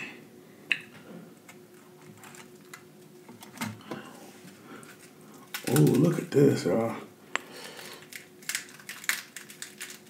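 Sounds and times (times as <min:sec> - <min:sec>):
faint steady hum: 0:00.0 - 0:10.0
crispy food crackling in fingers: 0:04.8 - 0:06.4, 0:07.7 - 0:10.0.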